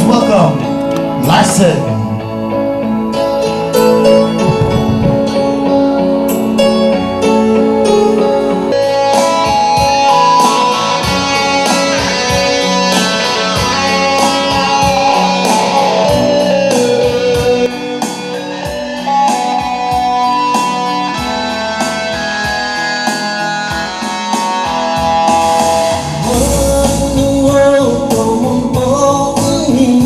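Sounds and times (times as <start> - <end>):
electric guitar: 0.0 - 30.0
keyboards: 0.0 - 30.0
steady drum beat: 4.3 - 5.4, 24.7 - 29.8.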